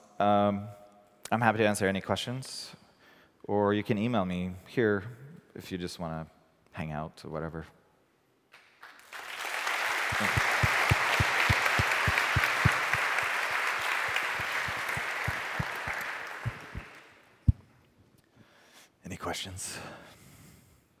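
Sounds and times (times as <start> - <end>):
audience applauding: 8.8 - 17.2.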